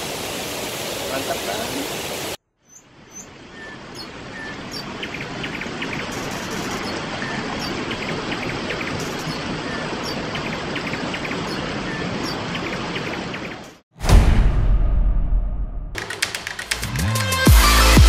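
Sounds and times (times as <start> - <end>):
waterfall rushing over rocks: 0.0 - 2.4
birds chirping: 1.1 - 13.8.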